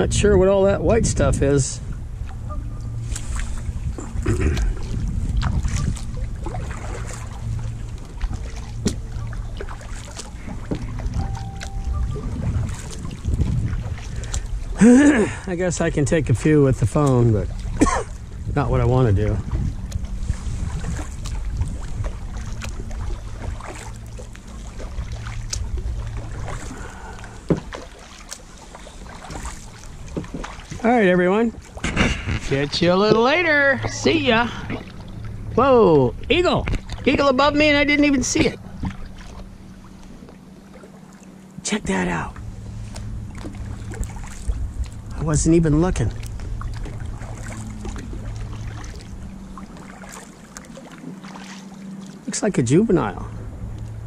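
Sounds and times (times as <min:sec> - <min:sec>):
wind rumble on microphone: 0:00.0 - 0:27.9, 0:29.0 - 0:40.4, 0:41.9 - 0:50.1
low steady hum: 0:00.0 - 0:54.0
water lapping at hull: 0:00.0 - 0:54.0
kayak paddle splashing: 0:01.8 - 0:54.0
water drips: 0:04.2 - 0:15.0, 0:21.2 - 0:30.9
faint drip ticks: 0:53.7 - 0:54.0.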